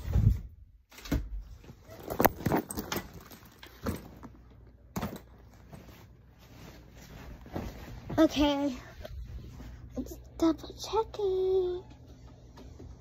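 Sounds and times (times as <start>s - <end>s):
faint rustling: 5.4s - 10.1s.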